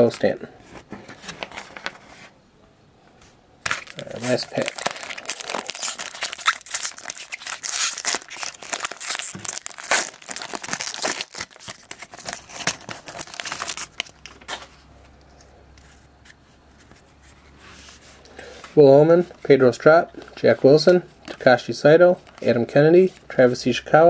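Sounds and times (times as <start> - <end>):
foil wrapper crinkling: 3.7 - 14.7.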